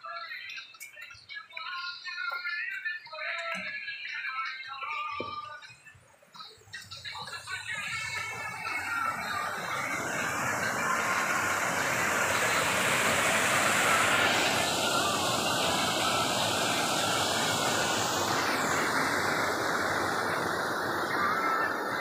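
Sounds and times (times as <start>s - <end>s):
stream rushing over boulders: 7.4s - 22.0s.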